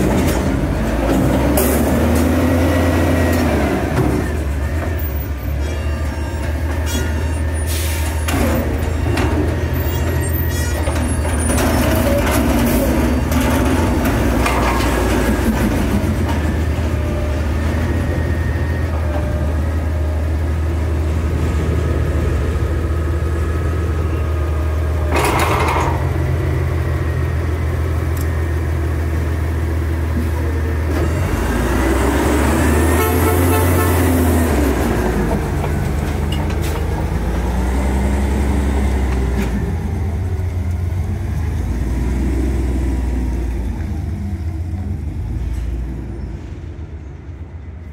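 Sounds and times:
truck engine running: 0:07.7 - 0:45.4.

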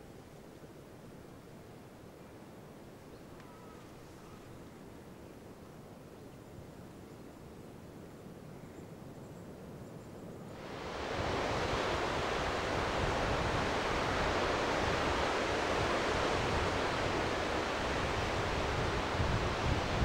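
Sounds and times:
wind: 0:00.0 - 0:20.0
surf breaking on rocks: 0:10.6 - 0:20.0.

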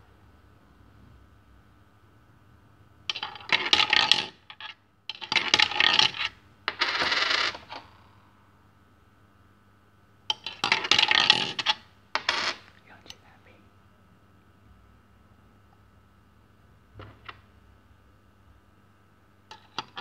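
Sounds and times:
coins clattering in machine: 0:03.1 - 0:04.4, 0:05.1 - 0:07.6, 0:10.3 - 0:12.6.

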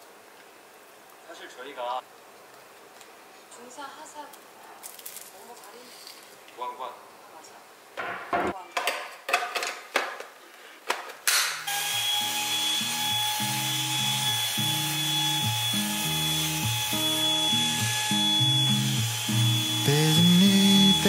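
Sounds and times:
stick vacuum whining: 0:11.7 - 0:21.0.

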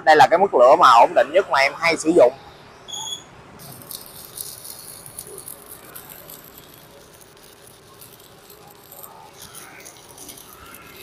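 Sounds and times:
welding arc crackling: 0:03.6 - 0:11.0.

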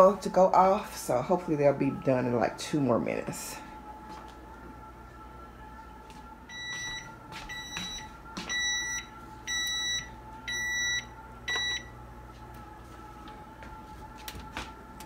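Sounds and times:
faint steady hum: 0:00.0 - 0:15.0
high-pitched oven timer beeps: 0:06.5 - 0:12.0.

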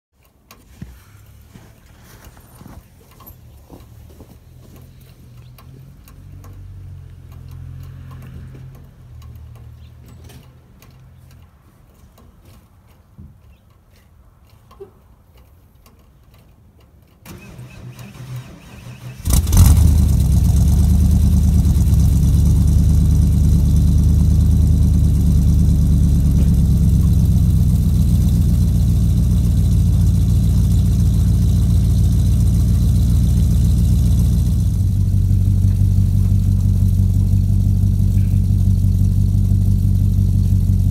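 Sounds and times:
engine starter cranking: 0:17.2 - 0:23.5
truck engine idling: 0:17.3 - 0:40.9.

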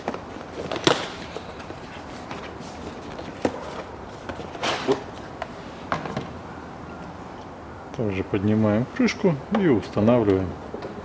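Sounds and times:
scraping rustle: 0:00.0 - 0:05.9.

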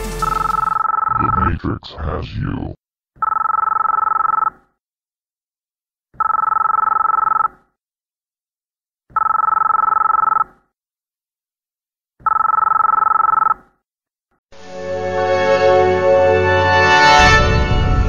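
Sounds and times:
telephone ringing: 0:00.2 - 0:01.5, 0:03.2 - 0:04.6, 0:06.2 - 0:07.6, 0:09.2 - 0:10.5, 0:12.2 - 0:13.6.

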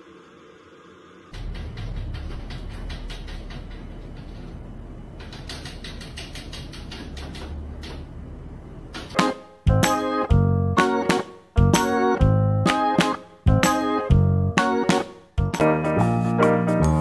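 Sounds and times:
music: 0:09.1 - 0:17.0.

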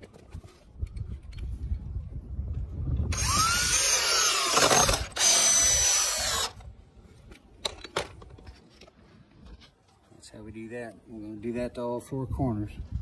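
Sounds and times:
cordless drill driving screw: 0:03.1 - 0:06.6.

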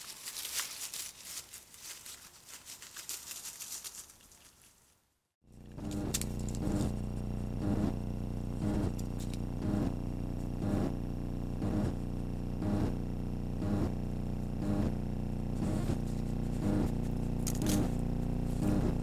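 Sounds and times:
steady electrical hum: 0:05.5 - 0:19.0
soft regular pulse: 0:05.6 - 0:19.0.

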